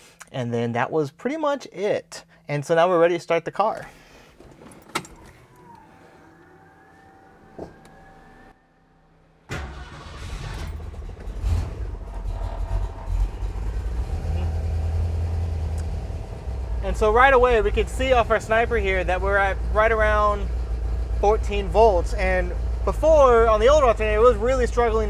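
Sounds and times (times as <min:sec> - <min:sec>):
car engine idling: 0:04.0 - 0:25.0.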